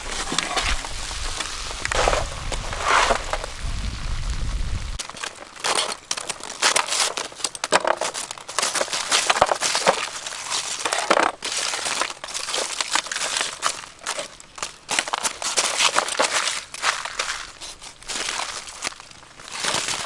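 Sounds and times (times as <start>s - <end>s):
aluminium foil crinkling: 5.0s - 20.0s.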